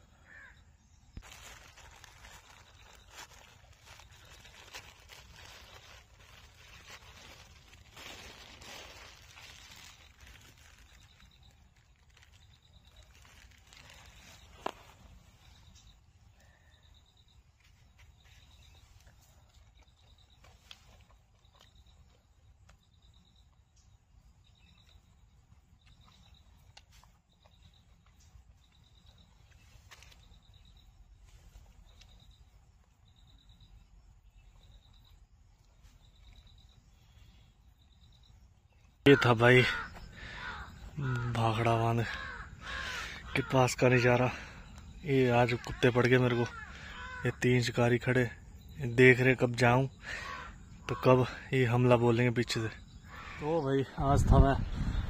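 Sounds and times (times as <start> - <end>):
faint high chirping: 0.0 - 42.1
rustling: 1.2 - 15.8.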